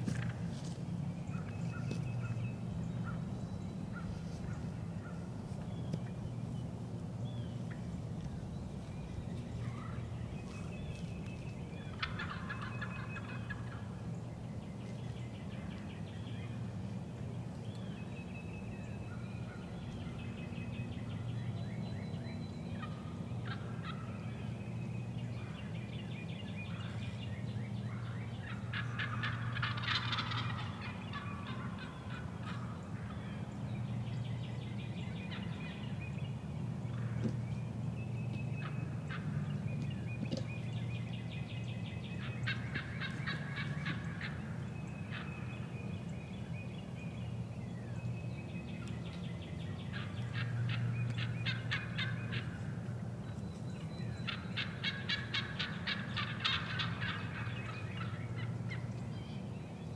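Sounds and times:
turkey gobbling: 9.6s - 10.6s, 11.8s - 13.9s, 22.8s - 24.1s, 27.8s - 33.3s, 35.2s - 35.8s, 38.6s - 39.4s, 42.2s - 45.7s, 49.8s - 52.9s, 54.2s - 59.0s.

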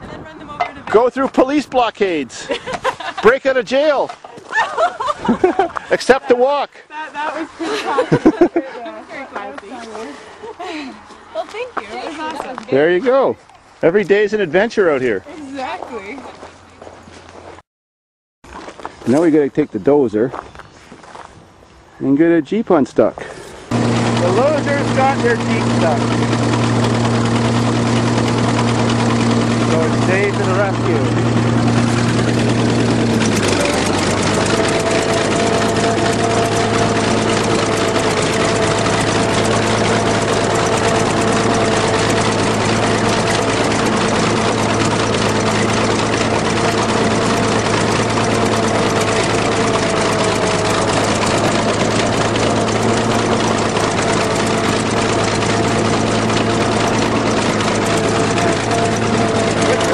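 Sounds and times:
diesel engine running: 23.6s - 59.9s.

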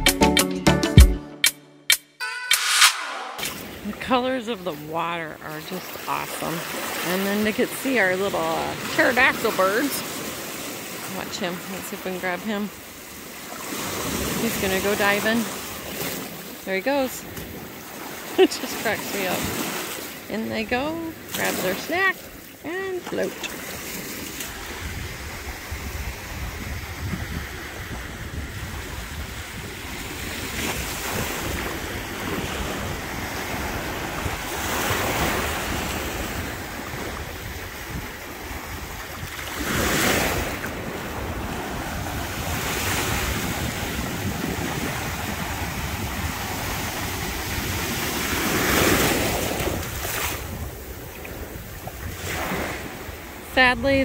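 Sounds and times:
small waves breaking on shore: 3.6s - 54.0s
wind buffeting microphone: 22.8s - 54.0s.

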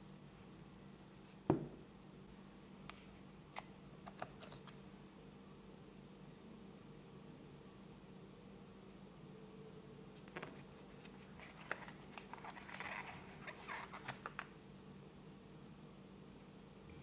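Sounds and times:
paper packaging rustling: 10.2s - 14.6s.

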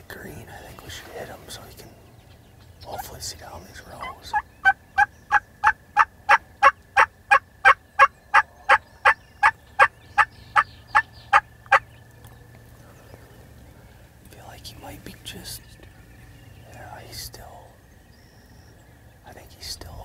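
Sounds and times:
wild turkey yelping: 4.0s - 12.1s.

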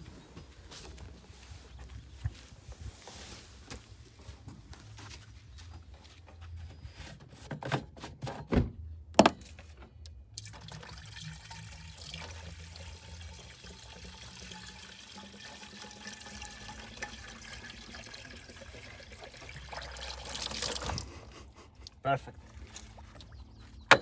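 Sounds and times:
liquid pouring into a tank: 10.3s - 21.2s.

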